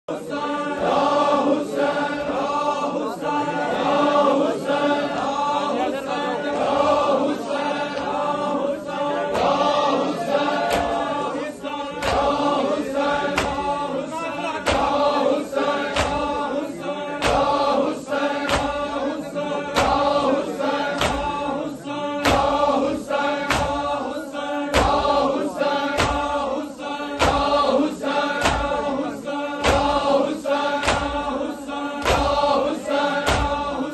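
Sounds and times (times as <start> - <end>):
crowd of men chanting: 0.1 - 33.9
rhythmic chest-beating strikes: 0.1 - 33.9.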